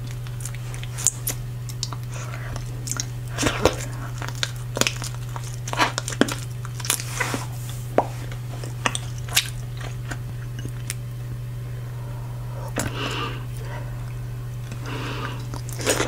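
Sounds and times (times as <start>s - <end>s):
gum chewing smacks and clicks: 0.0s - 7.1s
steady low hum: 0.0s - 16.0s.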